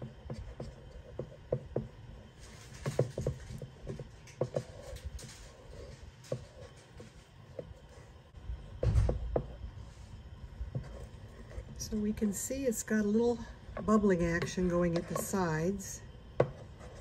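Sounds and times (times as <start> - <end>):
thump: 8.8 - 9.4
spoon scraping a pot: 13.8 - 15.7.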